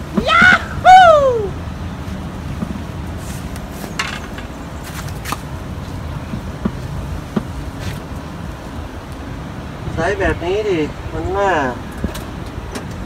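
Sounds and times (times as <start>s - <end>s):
low outdoor background noise: 0.0s - 13.0s.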